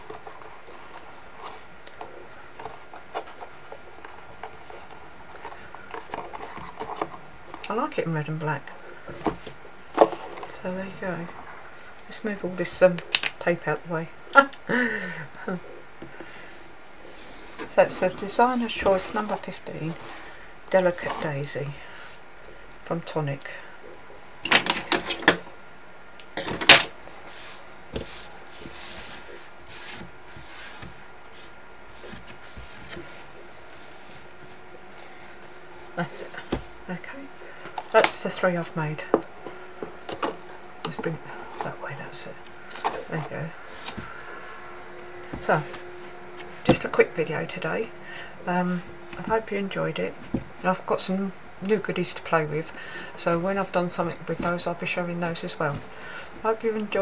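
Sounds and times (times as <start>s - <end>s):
cardboard box rustling: 0.0s - 7.6s
craft supplies rustling: 0.0s - 7.8s, 8.8s - 11.6s, 15.7s - 22.8s, 26.3s - 47.1s.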